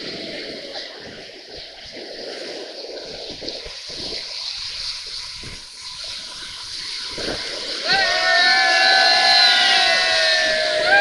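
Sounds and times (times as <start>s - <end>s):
whitewater rushing: 3.9s - 11.0s.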